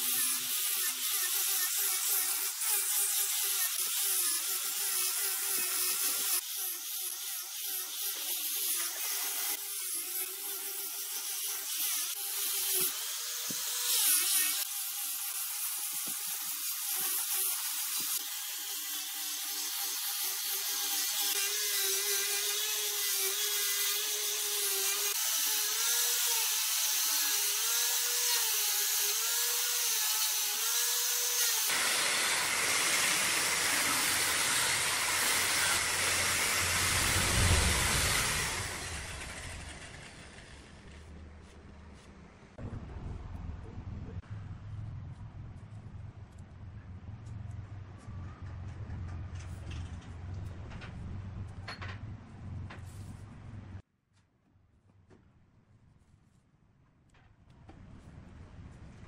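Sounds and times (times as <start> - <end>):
tool cutting spinning wood: 15.7 - 42.2
wood lathe motor whine: 31.7 - 41.0
deep machine rumble: 36.5 - 53.8.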